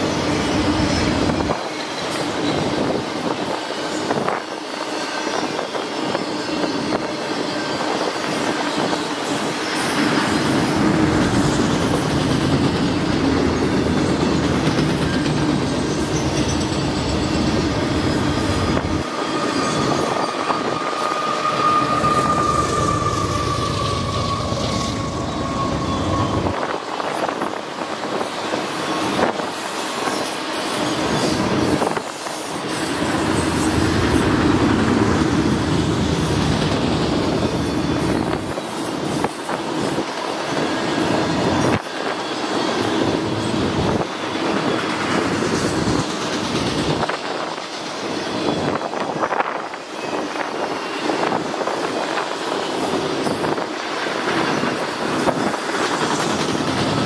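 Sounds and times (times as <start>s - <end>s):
train wheels rumbling and rattling: 0.0s - 57.0s
wheels clacking over rail joints: 9.9s - 20.4s.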